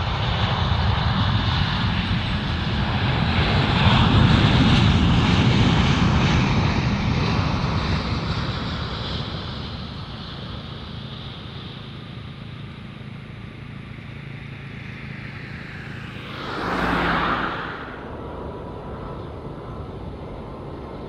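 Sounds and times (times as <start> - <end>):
jet airliner engine rumble: 0.0 - 21.0.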